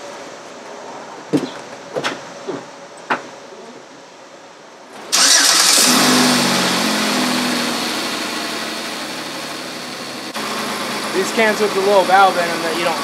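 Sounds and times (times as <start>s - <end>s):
car engine starting and idling: 5.0s - 13.0s.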